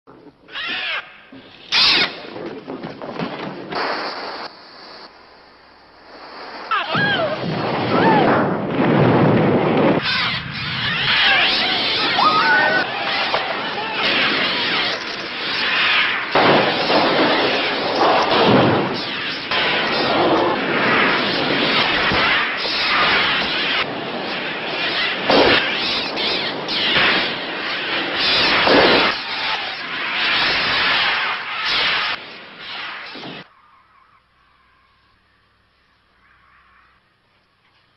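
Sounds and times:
fire rushing: 0.1 - 33.5
birds flapping and shrieking: 0.2 - 3.7, 9.8 - 37.2
shrill bird screeches: 0.5 - 2.2
sudden blast: 6.5 - 33.5.

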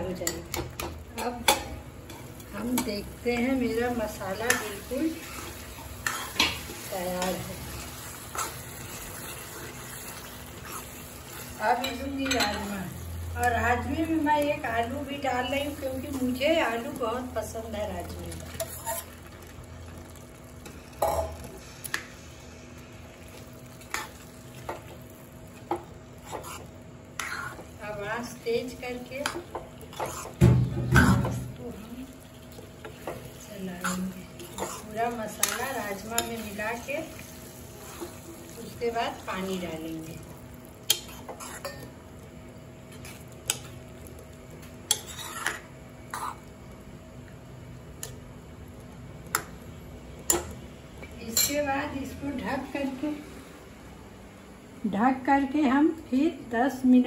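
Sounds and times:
low sizzle: 0.0 - 57.0
ladle stirring beans in gravy: 0.2 - 12.8, 18.0 - 30.4, 31.2 - 46.7.

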